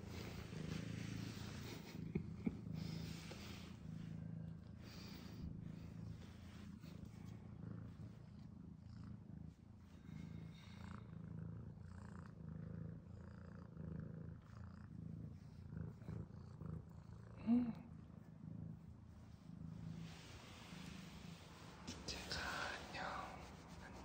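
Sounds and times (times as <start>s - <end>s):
soft rustling: 0.0s - 8.5s, 18.7s - 24.0s
cat purring: 0.0s - 24.0s.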